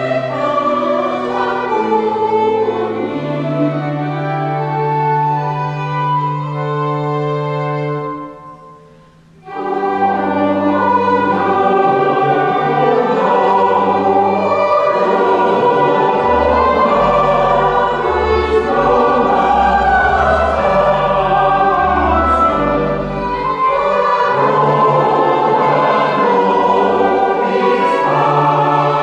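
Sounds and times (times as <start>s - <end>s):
choir singing: 0.0s - 5.4s, 9.4s - 29.0s
organ playing: 0.0s - 29.0s.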